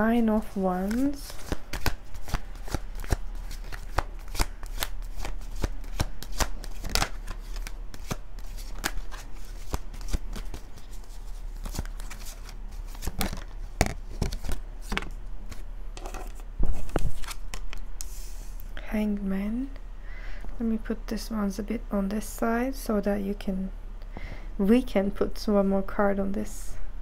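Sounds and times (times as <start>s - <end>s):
cards being shuffled: 0.8s - 18.3s.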